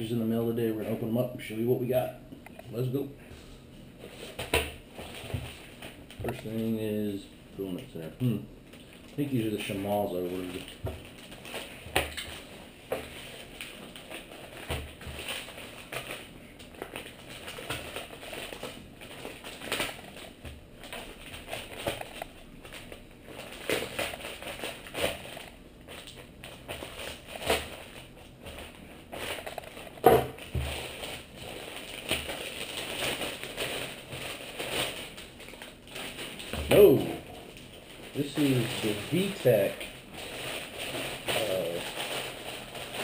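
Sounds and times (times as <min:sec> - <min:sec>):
plastic mailer bag crinkling: 0:08.7 - 0:43.0.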